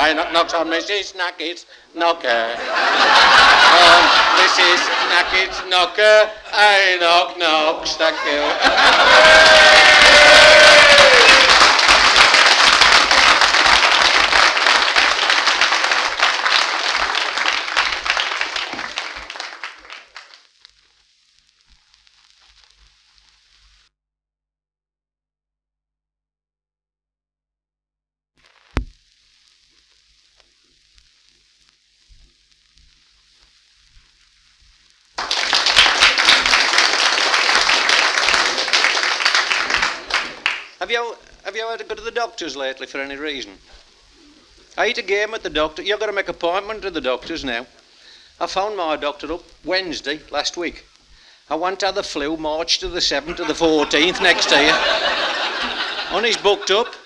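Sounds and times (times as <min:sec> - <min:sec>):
record surface hiss: 0:00.0 - 0:23.9, 0:28.4 - 0:57.0
audience applauding: 0:02.6 - 0:06.8, 0:07.5 - 0:20.4, 0:35.2 - 0:40.8, 0:53.3 - 0:57.0.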